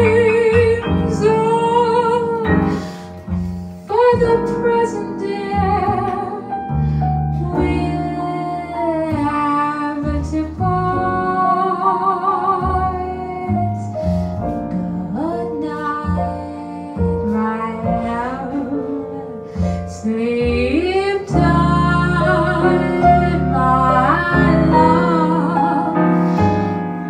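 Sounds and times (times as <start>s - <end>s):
grand piano: 0.0s - 27.0s
walking upright bass: 0.0s - 27.0s
woman singing with vibrato: 20.0s - 26.1s.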